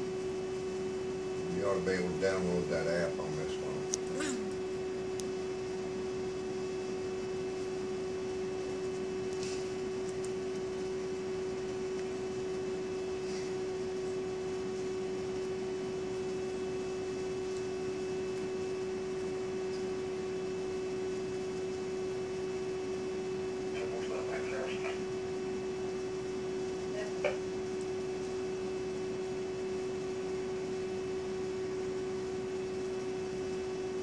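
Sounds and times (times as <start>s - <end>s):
electric fan whirring: 0.0s - 34.0s.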